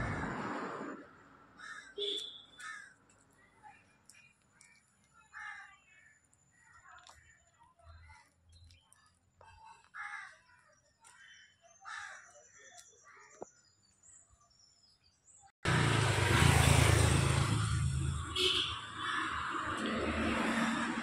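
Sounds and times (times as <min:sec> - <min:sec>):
loud rushing noise with rumble: 0:00.0 - 0:01.2
crow cawing: 0:01.6 - 0:02.9, 0:19.0 - 0:19.4.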